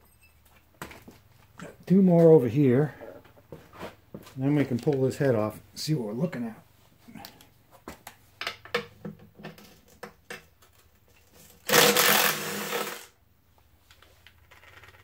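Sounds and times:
cordless driver spinning: 11.6s - 13.0s.

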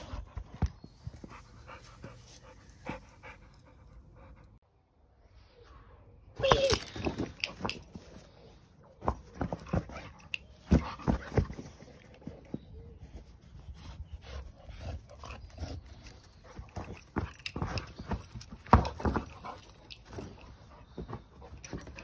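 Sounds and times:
dog panting: 9.2s - 22.0s.

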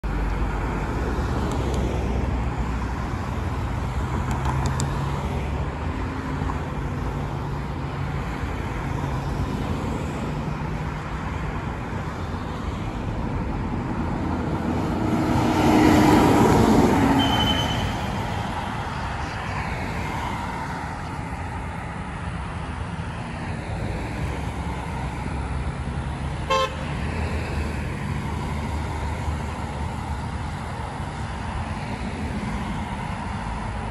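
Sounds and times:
bus diesel engine: 0.0s - 33.9s
road traffic passing: 0.0s - 33.9s
short horn toot: 17.2s - 18.2s, 26.5s - 26.8s.

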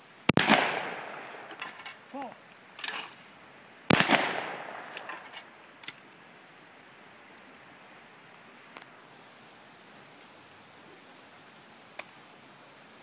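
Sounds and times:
shotgun shots with echo: 0.3s - 1.6s, 3.9s - 5.0s.

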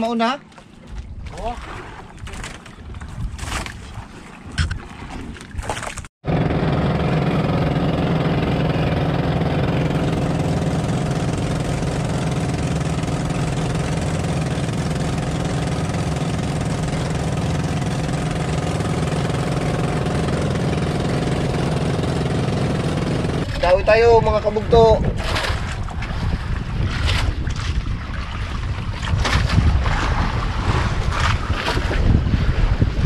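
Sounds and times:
boat engine droning: 6.2s - 26.8s.

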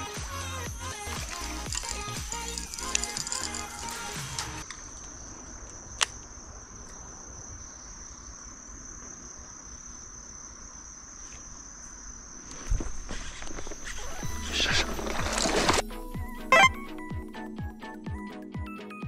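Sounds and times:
insect trilling: 0.8s - 8.5s, 9.4s - 15.6s, 16.3s - 17.1s.

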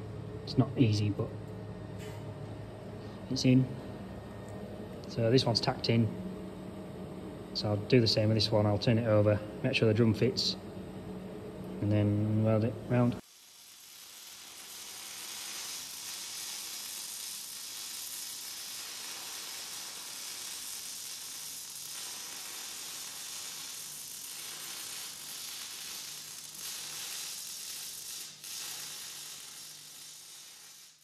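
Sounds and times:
arc welding sizzle: 11.8s - 31.0s.

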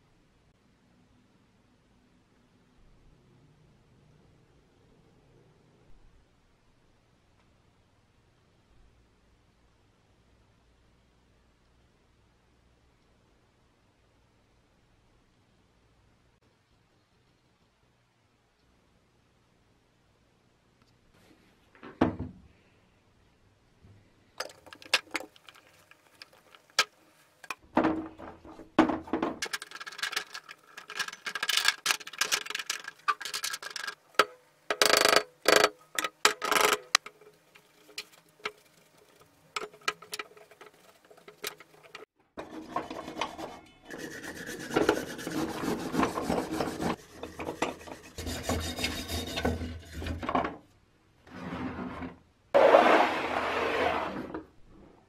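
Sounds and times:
clicks of handled parts: 29.4s - 38.6s
wire brush scrubbing metal: 35.5s - 50.2s.

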